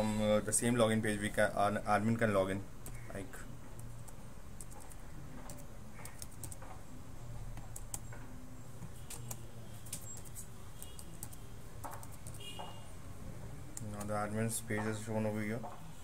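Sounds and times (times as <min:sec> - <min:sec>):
keyboard and mouse clicks: 0:03.8 - 0:06.8, 0:09.1 - 0:12.4.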